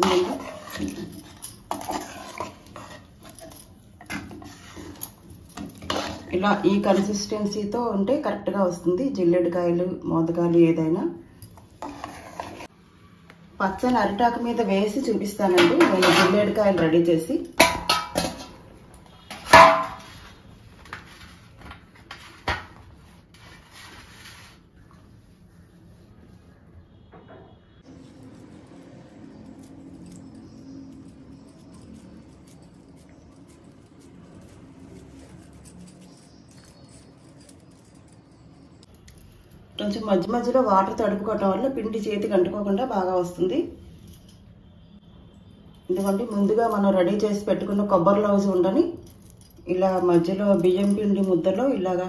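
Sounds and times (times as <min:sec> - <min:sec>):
spoon scraping metal bowl: 0:00.0 - 0:07.6, 0:11.6 - 0:12.7, 0:15.5 - 0:16.8.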